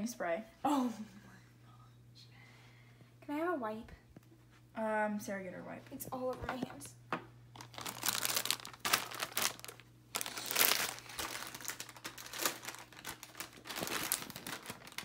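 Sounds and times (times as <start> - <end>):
plastic packaging crinkling: 7.5 - 15.0.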